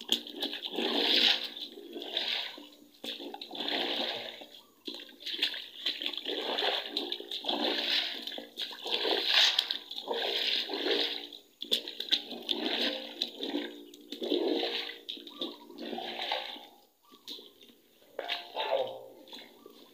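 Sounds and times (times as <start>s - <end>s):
boots splashing through water: 0.0s - 19.9s.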